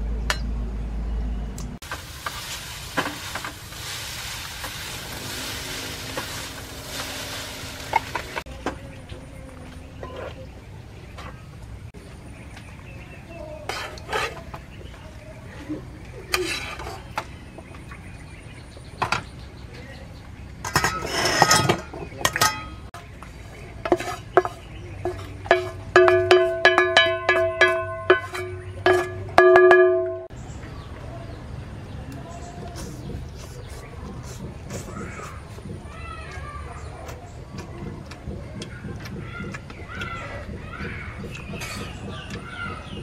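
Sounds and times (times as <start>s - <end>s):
noodles tossed from a wok: 1.9s - 8.5s
metal tongs clinking on a pot: 20.7s - 22.8s, 23.9s - 29.8s
knocks ringing a steel pot: 24.4s - 30.3s.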